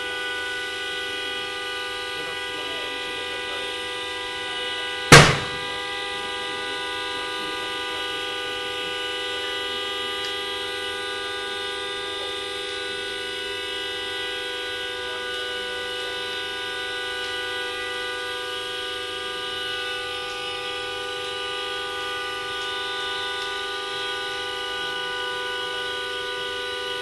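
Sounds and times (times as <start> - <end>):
loud sharp bang: 5.1 - 5.8.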